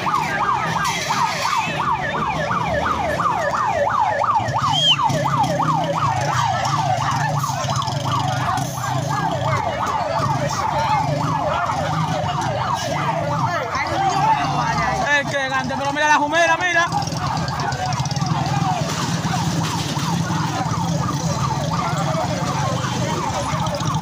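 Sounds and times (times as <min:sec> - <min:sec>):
fire truck siren yelping: 0:00.0 - 0:24.0.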